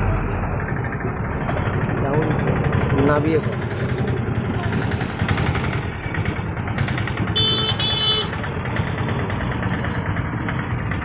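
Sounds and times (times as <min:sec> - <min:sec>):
vehicle engines idling in traffic: 0:00.0 - 0:11.0
high-pitched vehicle horn beeping: 0:07.2 - 0:08.5.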